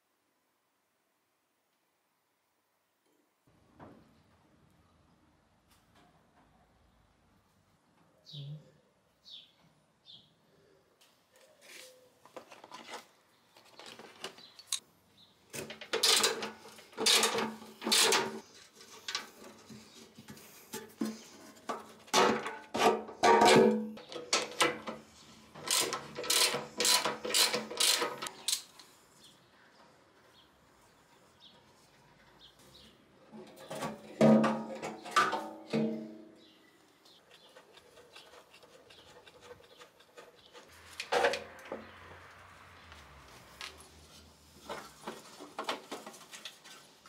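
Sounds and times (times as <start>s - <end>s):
metal hand tools clanking: 15.8s - 18.4s.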